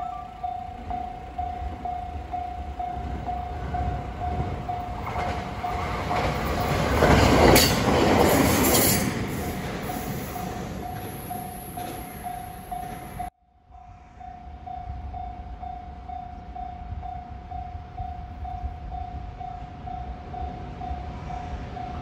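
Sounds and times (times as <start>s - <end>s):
level crossing alarm ringing: 0.0s - 6.8s, 8.8s - 13.3s
electric train passing: 0.0s - 22.0s.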